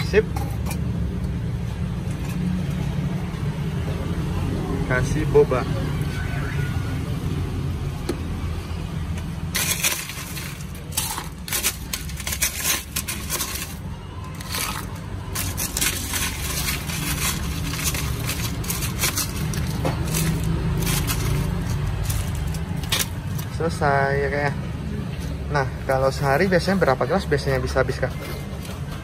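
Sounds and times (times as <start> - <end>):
ice cubes clinking into cup: 9.6 - 23.2.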